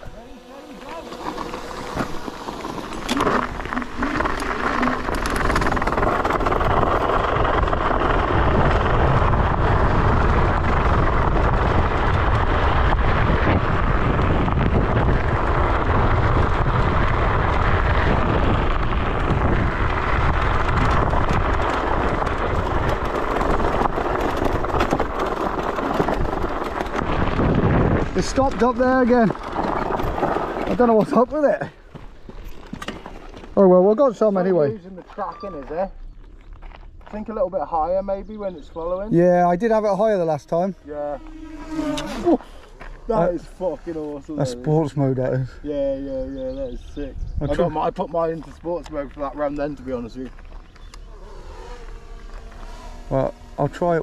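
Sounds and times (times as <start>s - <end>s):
tyre noise: 0.0s - 38.0s, 39.7s - 44.5s
electric scooter rumbling: 0.0s - 54.0s
wind over microphone: 0.0s - 54.0s.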